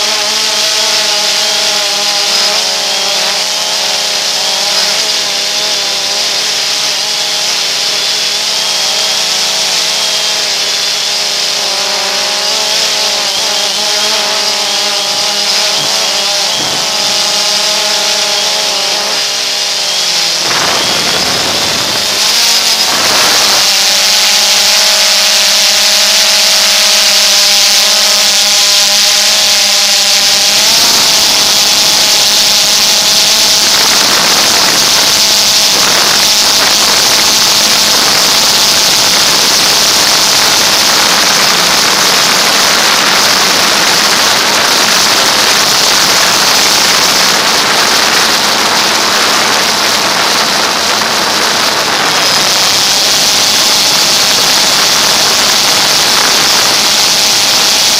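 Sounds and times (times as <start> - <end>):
drone motors whining: 0.0 - 57.9.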